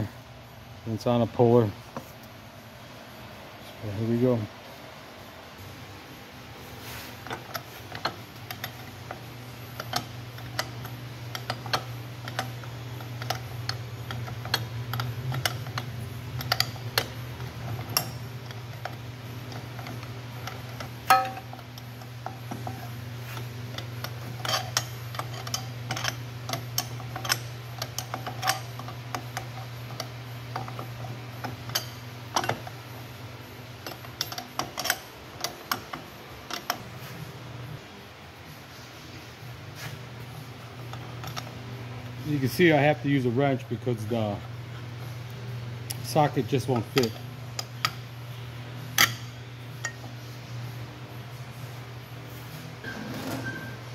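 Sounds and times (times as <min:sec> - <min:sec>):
steady low hum: 0:00.0 - 0:53.9
hand tools clinking on metal: 0:13.2 - 0:32.8.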